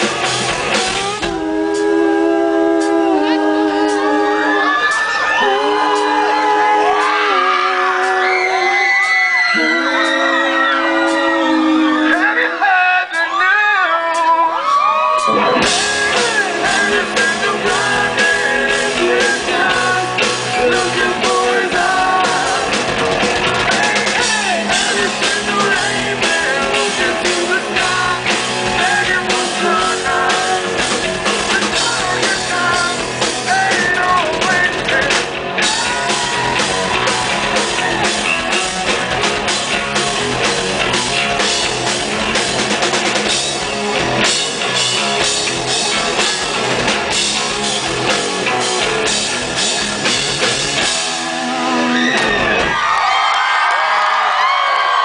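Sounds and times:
drum kit beat: 0:00.0 - 0:08.3, 0:15.1 - 0:52.8
electric guitars: 0:00.0 - 0:13.4, 0:14.5 - 0:55.0
person singing: 0:00.8 - 0:38.2.

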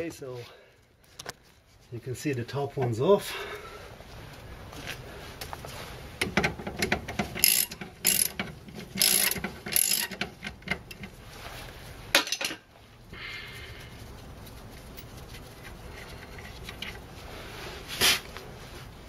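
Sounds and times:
ratchet wrench clicking: 0:06.2 - 0:11.0.

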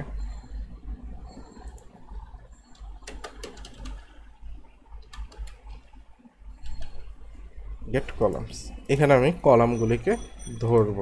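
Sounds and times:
steady low hum: 0:00.0 - 0:11.0
computer keyboard typing: 0:01.6 - 0:04.2, 0:05.0 - 0:05.9.

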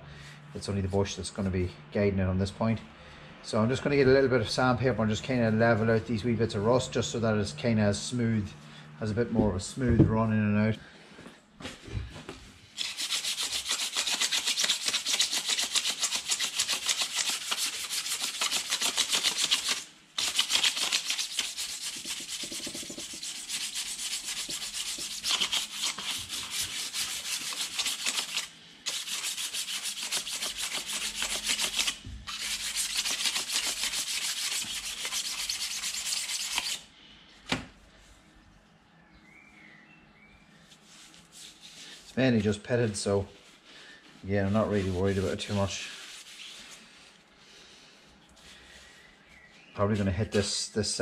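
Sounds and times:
sandpaper rubbing on metal: 0:12.8 - 0:36.9, 0:40.8 - 0:42.2, 0:44.5 - 0:47.1.

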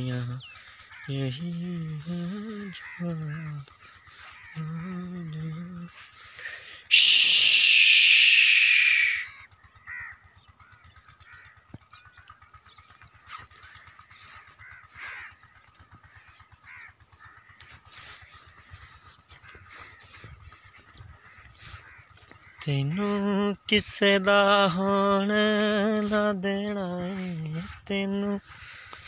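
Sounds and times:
crows cawing: 0:00.0 - 0:01.2, 0:02.2 - 0:24.0, 0:25.8 - 0:27.8, 0:28.4 - 0:29.0
high rushing sound falling in pitch: 0:06.9 - 0:09.3.

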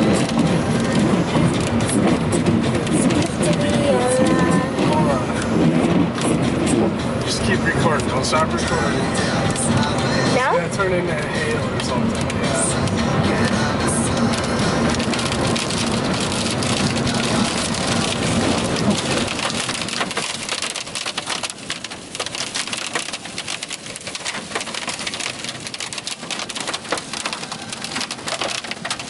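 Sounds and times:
hail pelting a car roof: 0:00.0 - 0:29.0.

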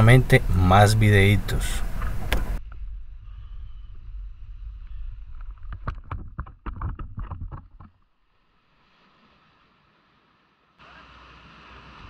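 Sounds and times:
wind rumbling on microphone: 0:00.0 - 0:08.0.

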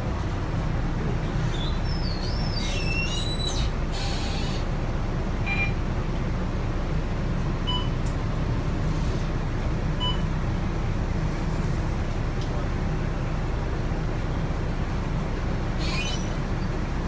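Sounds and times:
bus engine and road rumble: 0:00.0 - 0:17.0
short faint beeps: 0:05.5 - 0:05.8, 0:10.0 - 0:10.3.

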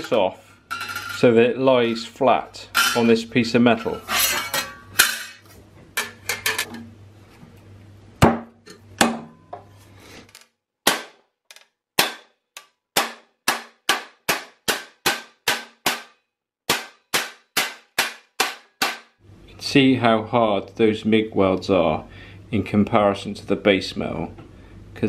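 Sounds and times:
steel sheets clattering: 0:00.0 - 0:05.4
hammer striking steel: 0:12.0 - 0:12.3, 0:13.0 - 0:19.1.

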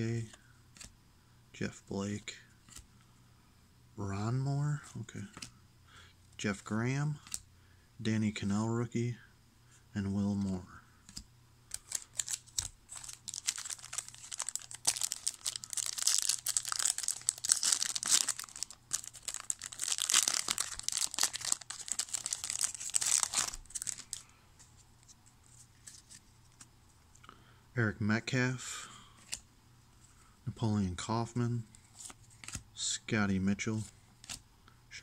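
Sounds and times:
faint clicks of cards: 0:07.2 - 0:07.5
foil wrapper crinkling and tearing: 0:11.7 - 0:24.2.

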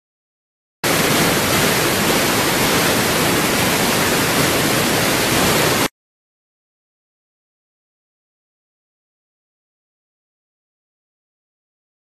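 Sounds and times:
loud static hiss: 0:00.8 - 0:05.9.

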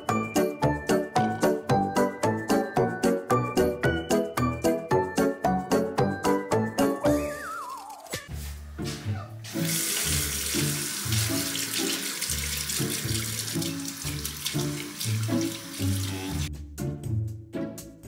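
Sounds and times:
tap water pouring into basin: 0:09.5 - 0:16.5.

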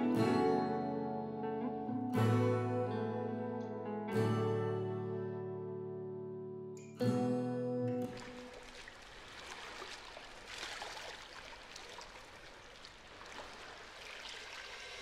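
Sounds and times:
water lapping and sloshing: 0:08.0 - 0:15.0.

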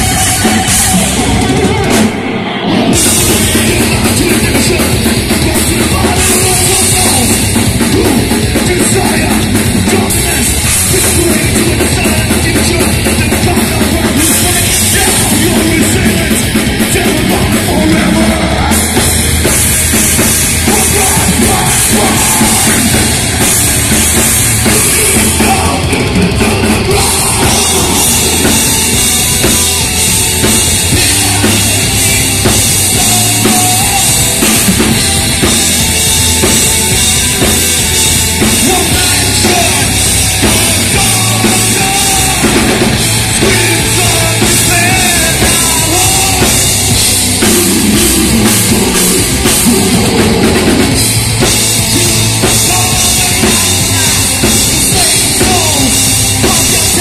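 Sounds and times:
heavy metal band playing live: 0:00.0 - 0:57.0.

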